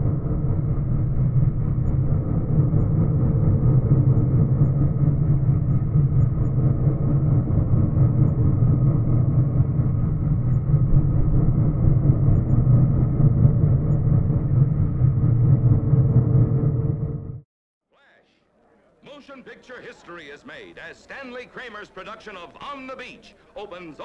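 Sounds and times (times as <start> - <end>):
muffled low engine drone: 0.0 - 17.5.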